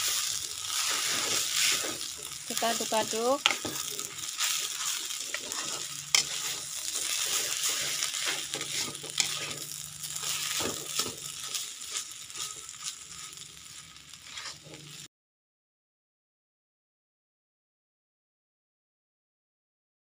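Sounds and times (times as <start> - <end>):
food sizzling in oil: 0.0 - 15.1
metal spatula scraping a pan: 0.0 - 15.1.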